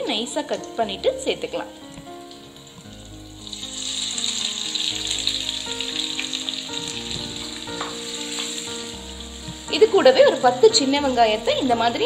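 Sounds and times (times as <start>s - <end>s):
onions sizzling in oil: 0.0s - 12.0s.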